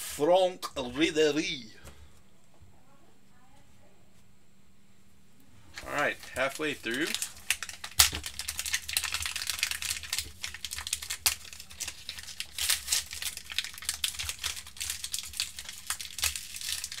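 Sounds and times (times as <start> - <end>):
cards being handled: 5.7 - 17.0
card pack wrapper crinkling: 5.8 - 17.0.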